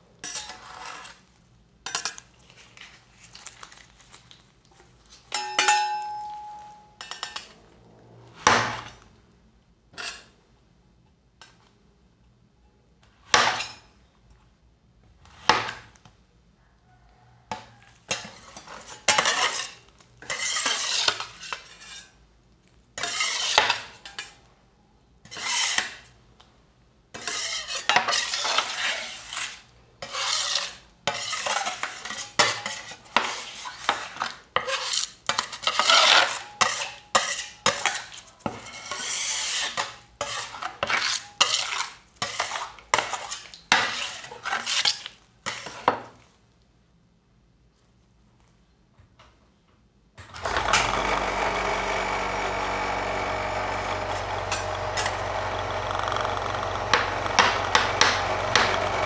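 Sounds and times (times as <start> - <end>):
spatulas scraping metal plate: 0.2 - 1.3, 10.0 - 10.3, 18.1 - 22.2, 23.0 - 24.4, 25.2 - 26.0, 27.2 - 45.9, 53.7 - 59.0
spatulas chopping on metal plate: 13.3 - 13.9, 56.6 - 59.0.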